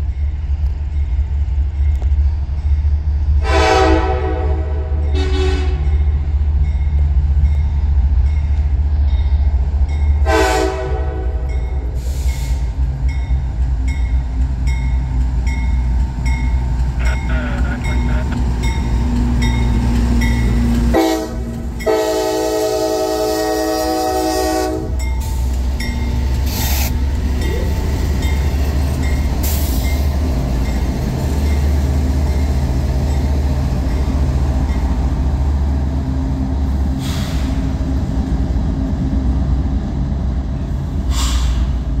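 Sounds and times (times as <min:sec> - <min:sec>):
diesel engines rumbling: 0:00.0 - 0:42.0
locomotive air horn: 0:03.4 - 0:05.9, 0:10.2 - 0:12.2, 0:20.9 - 0:25.0
short air hisses: 0:37.0 - 0:37.6, 0:41.1 - 0:41.8.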